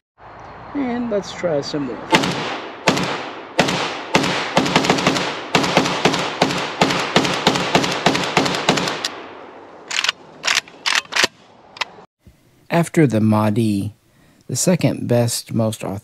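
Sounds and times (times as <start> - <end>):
rifle firing rapidly with echo: 2.1 - 9.3.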